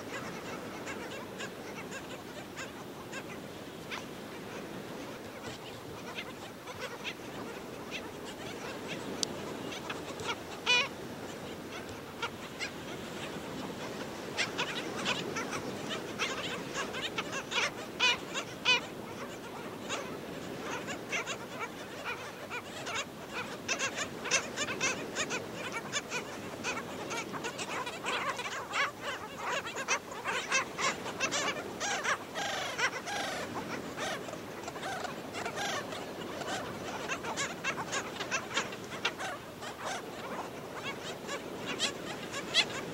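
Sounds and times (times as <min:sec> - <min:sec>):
wavering bird call: 0:04.0 - 0:42.9
seabirds barking yaps: 0:11.6 - 0:42.9.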